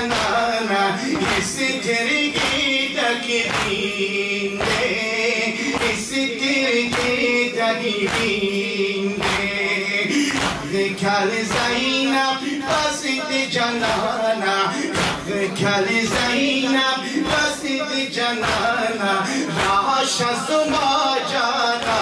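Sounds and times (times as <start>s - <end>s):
person singing a lament: 0.0s - 22.0s
hands striking chests: 10.2s - 10.8s, 15.0s - 15.3s.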